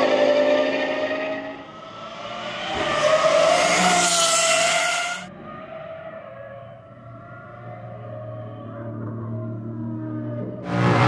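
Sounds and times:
high-revving car engine passing: 0.0s - 5.3s, 10.6s - 11.0s.

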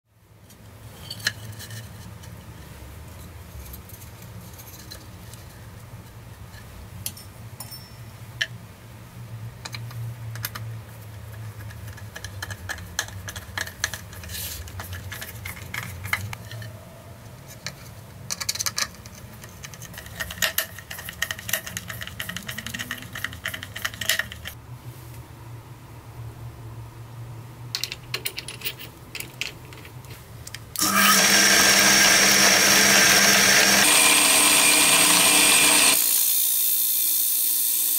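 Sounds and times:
drill press whining: 30.8s - 36.4s.

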